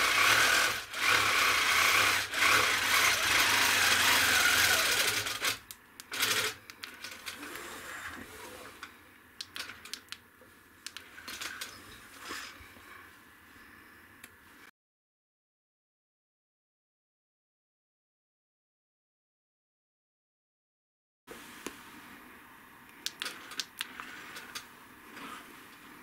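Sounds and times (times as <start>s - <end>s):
quilting machine humming: 0.0s - 8.9s.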